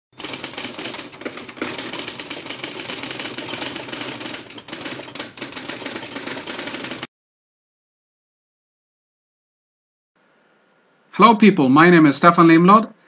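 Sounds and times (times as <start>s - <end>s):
rapid mechanical clicks: 0.2s - 7.1s.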